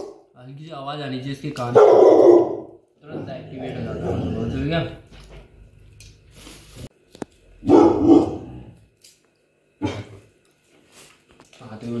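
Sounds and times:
dog barking: 0.0s - 0.2s, 1.7s - 2.8s, 7.6s - 8.7s.

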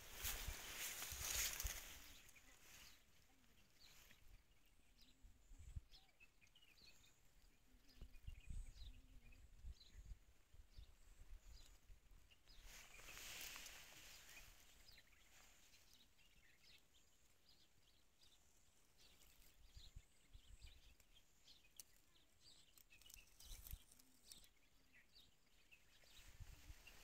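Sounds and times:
wind buffeting the microphone: 26.0s - 27.0s.

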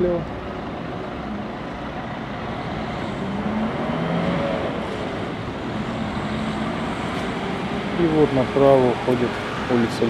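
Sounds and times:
faint engine hum: 0.0s - 10.0s
passing vehicles rushing: 0.0s - 10.0s.

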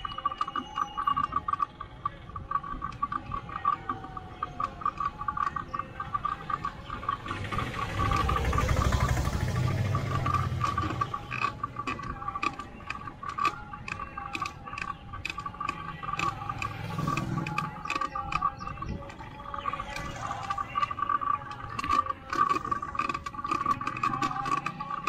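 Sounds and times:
auto-rickshaw engine passing: 0.0s - 25.0s
sharp ticks: 0.0s - 25.0s
motorcycle engine: 2.9s - 25.0s.

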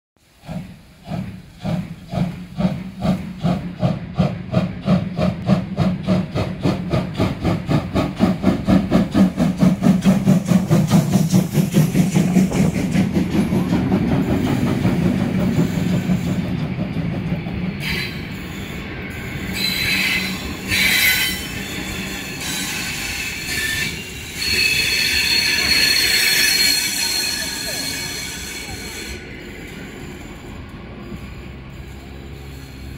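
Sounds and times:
steam locomotive exhaust chuffs: 0.2s - 32.9s
train coaches rolling: 0.2s - 32.9s
high wheel squeal: 17.8s - 32.9s.

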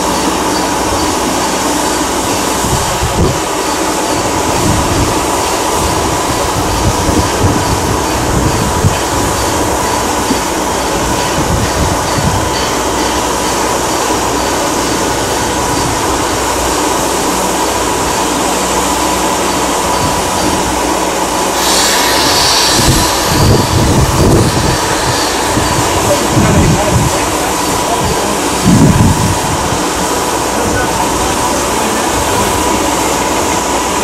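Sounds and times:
steam locomotive hissing: 0.0s - 34.0s
wind buffeting microphone: 2.4s - 12.8s, 22.1s - 34.0s
burst of steam hiss: 17.9s - 34.0s.

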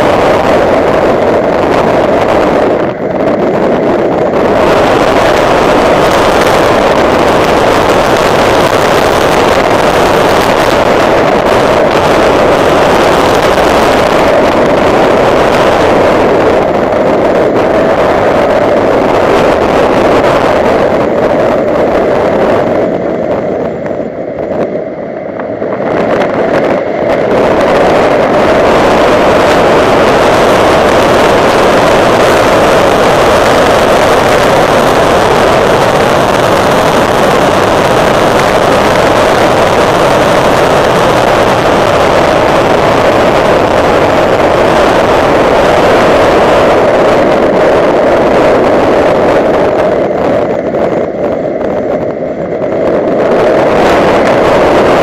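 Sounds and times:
car engine at speed: 0.0s - 55.0s
wind and road noise: 0.0s - 55.0s.

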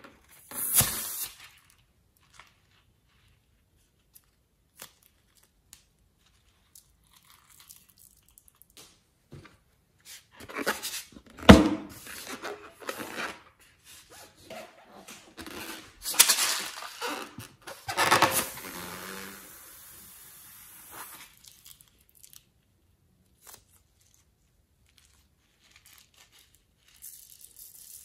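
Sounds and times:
hands rubbing rubber balloon: 13.9s - 21.2s.

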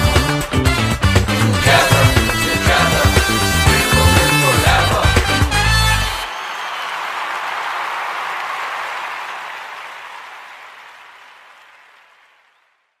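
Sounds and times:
applause: 5.8s - 13.0s.

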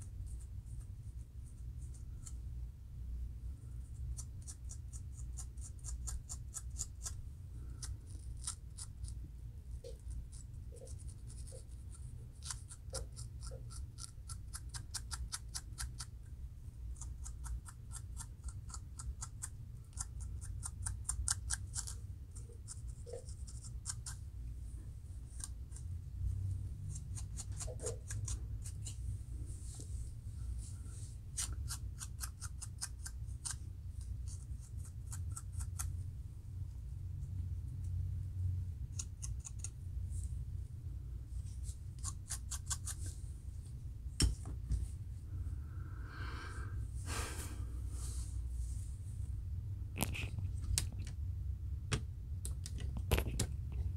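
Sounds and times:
metal comb scraping scalp: 42.0s - 43.1s.

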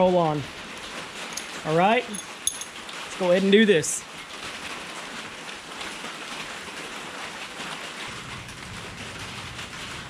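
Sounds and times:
steady rain falling: 0.0s - 10.0s
low rumble: 8.1s - 10.0s.

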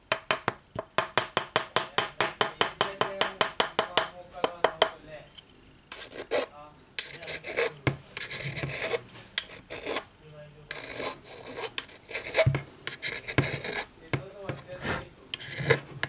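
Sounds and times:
tool scraping metal housing: 14.6s - 15.9s.

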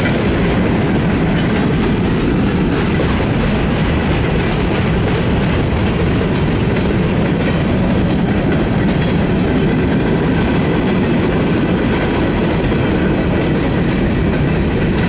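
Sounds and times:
train wheels rumbling on rails: 0.0s - 15.0s
wheels clicking over rail joints: 0.0s - 15.0s.

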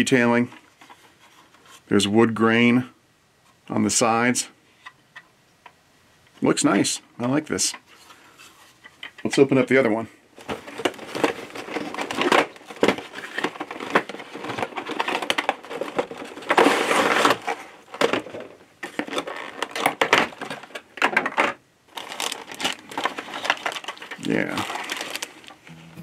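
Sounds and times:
plastic packaging crinkling: 10.4s - 21.0s, 21.9s - 25.7s.

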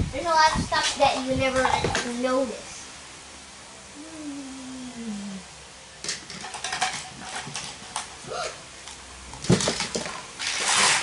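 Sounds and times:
plastic toys clattering: 6.1s - 8.2s, 9.4s - 10.2s.

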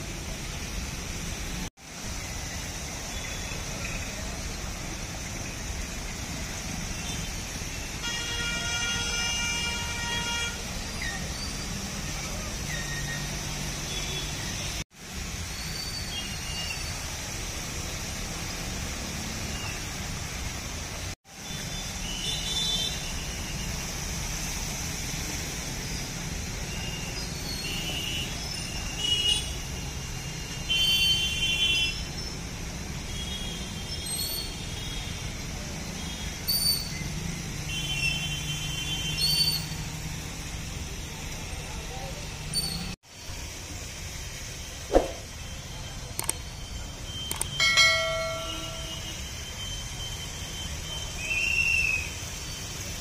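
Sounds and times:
vehicle horn toots: 8.0s - 10.6s
motorbike and scooter engines: 32.1s - 53.0s.

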